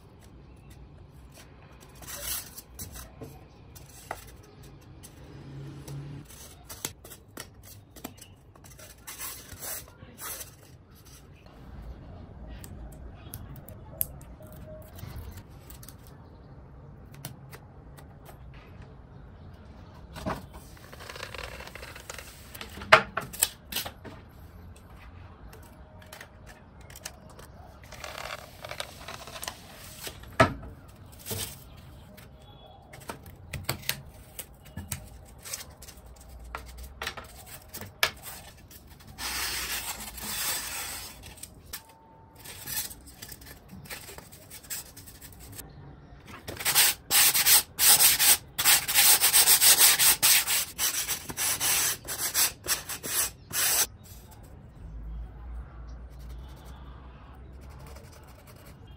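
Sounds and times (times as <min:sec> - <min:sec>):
sandpaper rubbing on foam: 0:46.6 - 0:53.9.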